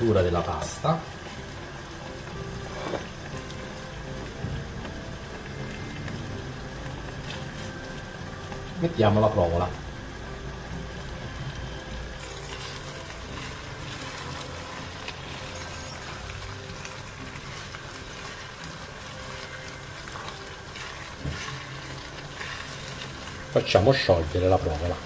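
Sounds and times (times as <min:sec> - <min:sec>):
food simmering in a pan: 0:00.0 - 0:25.0
spatula stirring with clicks and scrapes: 0:00.0 - 0:25.0.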